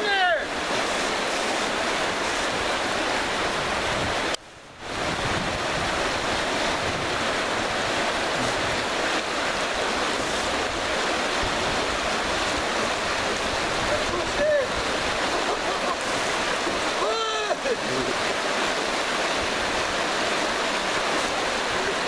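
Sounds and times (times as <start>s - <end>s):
river rapid rushing: 0.0s - 22.0s.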